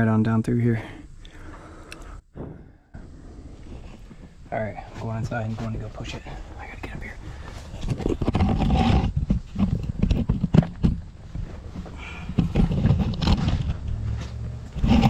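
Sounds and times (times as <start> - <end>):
man breathing effortfully: 0.8 - 4.5, 7.2 - 7.8, 11.8 - 12.7.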